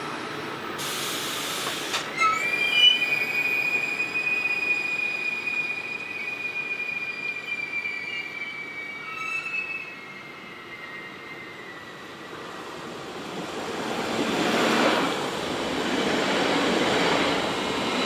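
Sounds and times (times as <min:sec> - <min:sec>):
train wheels squealing on rails: 0:00.8 - 0:13.0.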